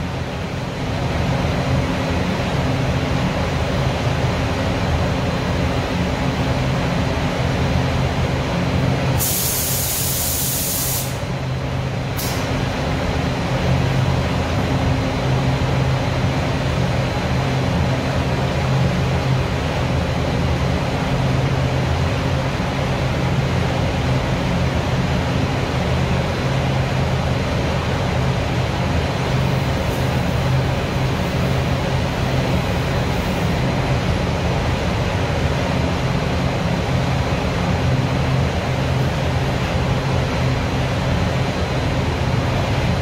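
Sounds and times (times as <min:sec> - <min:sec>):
compressed air hissing: 0:09.2 - 0:11.3, 0:12.2 - 0:12.5.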